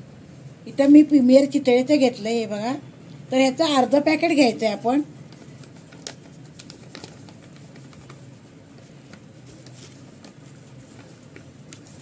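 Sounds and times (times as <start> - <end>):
low steady hum: 0.0 - 12.0
foil packet crinkling: 5.1 - 12.0.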